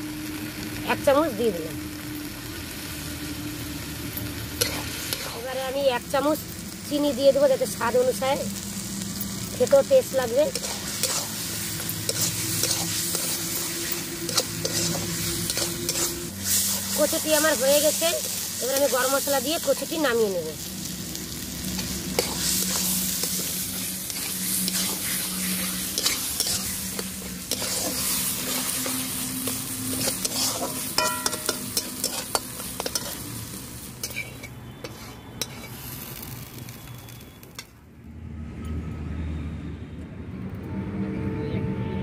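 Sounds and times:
food sizzling in pan: 0.0 - 37.7
metal spatula scraping pan: 10.4 - 17.3, 21.7 - 33.4, 34.0 - 35.8.

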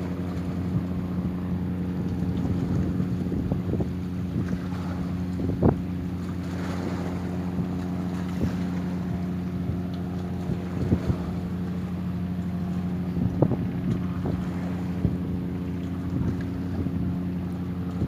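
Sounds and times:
motor boat engine droning: 0.0 - 18.0.

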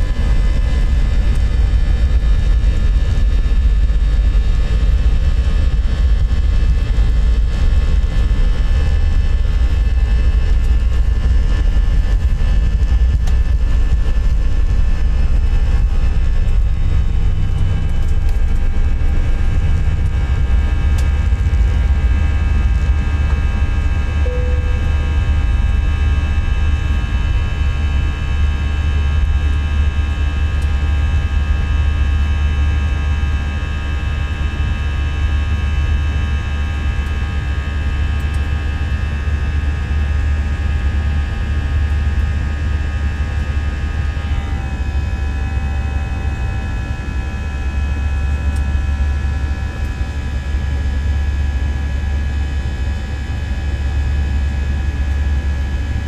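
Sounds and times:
jet engines roaring: 0.0 - 56.0.

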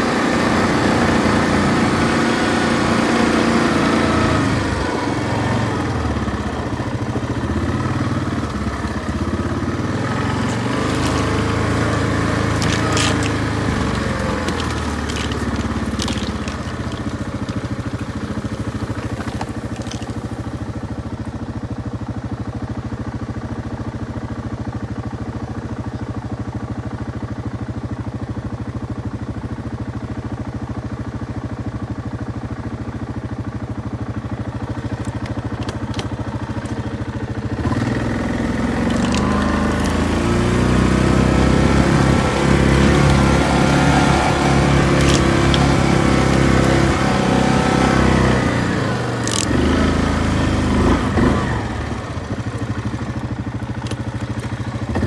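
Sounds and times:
quad engine running: 0.0 - 55.0
sharp clicks and knocks: 12.5 - 18.1, 38.8 - 40.1, 44.9 - 46.9, 49.2 - 49.6.

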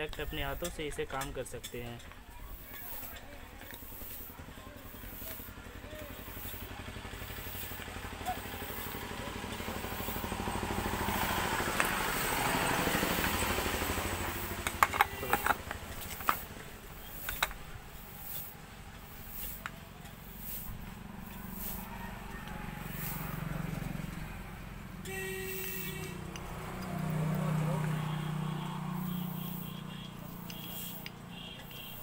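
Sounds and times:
vehicle engine running: 0.0 - 32.0
metal brake parts clinking: 14.6 - 16.5.

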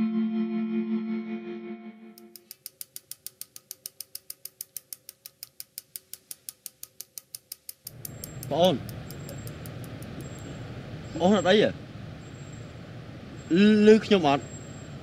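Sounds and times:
guitar music with heavy effects: 0.0 - 2.2
fast even ticking: 2.2 - 10.5.

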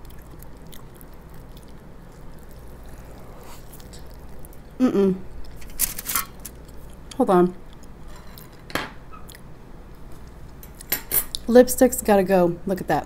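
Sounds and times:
squishing of burger being bitten: 0.0 - 8.1
low room hum: 0.0 - 13.0.

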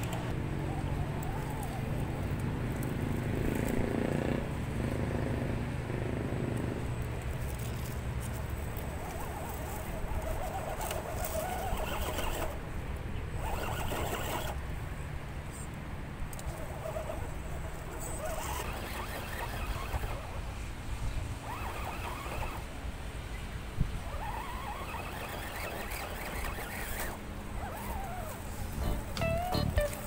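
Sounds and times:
small electric motor whirring: 0.0 - 3.9, 7.0 - 12.6, 13.3 - 14.6, 16.3 - 20.5, 21.4 - 22.7, 24.0 - 30.0.

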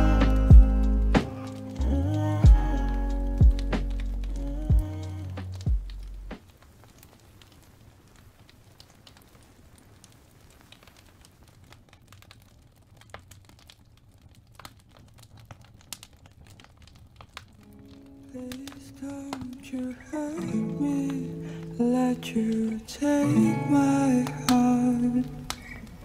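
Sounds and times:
low steady hum: 0.0 - 6.3.

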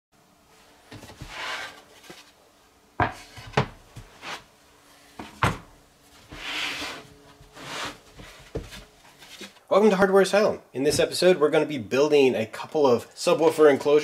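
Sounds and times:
board scraping across bench: 0.9 - 2.3, 3.0 - 4.5, 6.2 - 9.6
wooden boards knocking on bench: 3.0 - 3.8.

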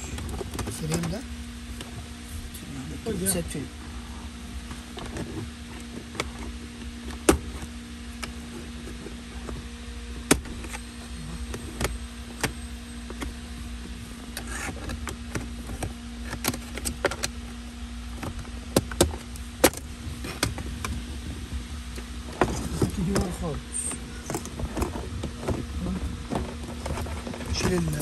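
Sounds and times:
low hum: 0.0 - 28.0
clicks and knocks of parts: 14.3 - 17.4.

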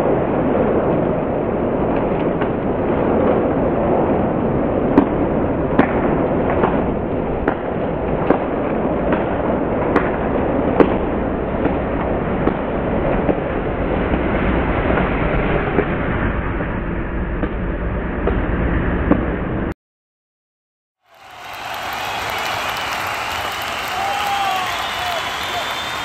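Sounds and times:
person clapping: 21.1 - 26.0.

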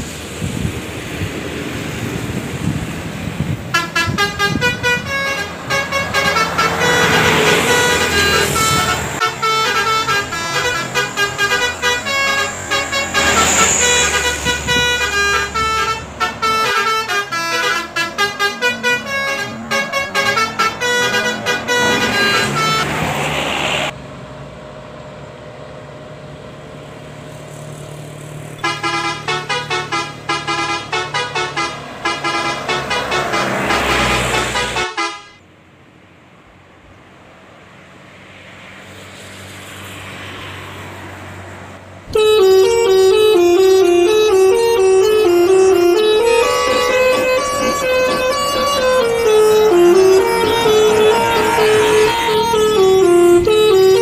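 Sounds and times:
bus engine: 0.0 - 54.0
traffic noise: 0.0 - 54.0
melodic bus air horns: 3.4 - 23.9, 28.6 - 35.4, 42.1 - 54.0.

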